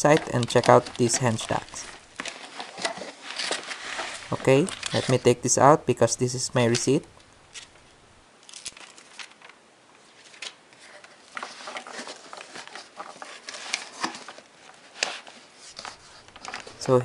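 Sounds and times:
cardboard box rustling and scraping: 0:00.0 - 0:05.4, 0:10.8 - 0:16.8.

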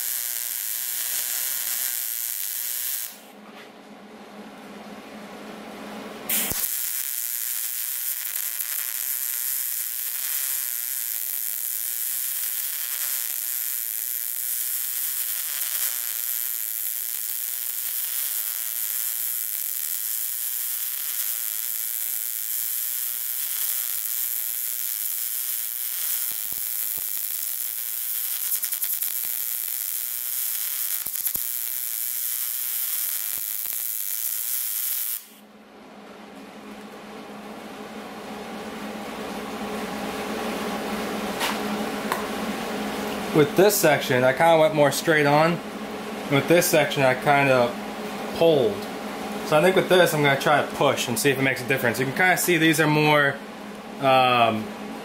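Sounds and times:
welding arc sizzling: 0:00.0 - 0:03.4, 0:06.3 - 0:35.4, 0:46.2 - 0:54.6.

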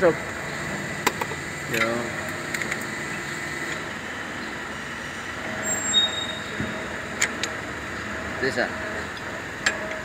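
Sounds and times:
steady background hum: 0:00.0 - 0:10.0
high-pitched squeak: 0:05.6 - 0:06.7.

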